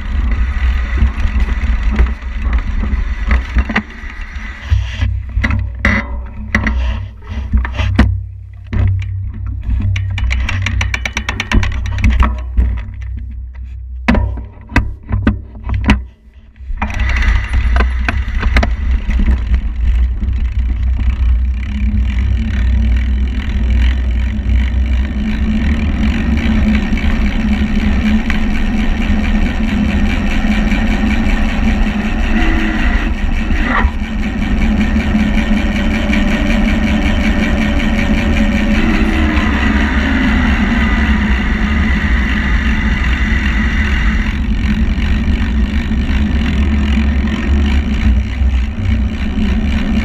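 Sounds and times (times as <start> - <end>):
wind buffeting microphone: 24.5 - 46.6.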